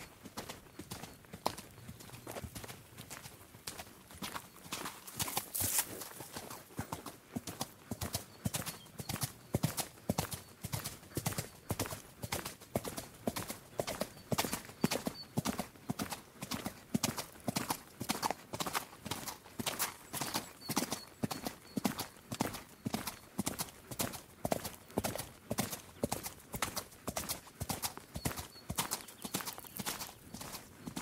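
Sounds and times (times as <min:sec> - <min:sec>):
horse hoofbeats galloping: 0:00.0 - 0:31.0.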